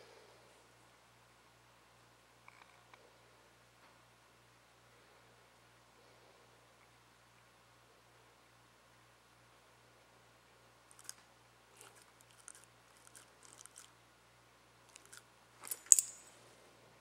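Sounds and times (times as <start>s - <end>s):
teeth and jaw clicks: 10.9s - 11.2s, 11.8s - 13.9s, 14.9s - 16.2s
small dog chewing: 11.8s - 13.9s.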